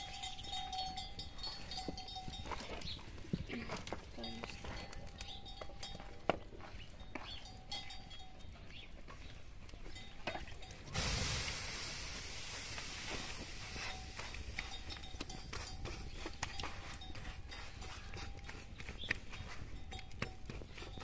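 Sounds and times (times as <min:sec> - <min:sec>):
dough sizzling on hot griddle: 0:11.0 - 0:14.3.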